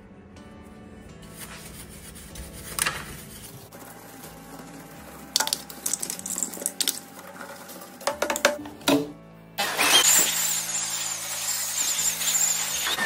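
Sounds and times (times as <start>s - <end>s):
brush bristles scrubbing metal: 1.2s - 8.4s, 10.3s - 13.0s.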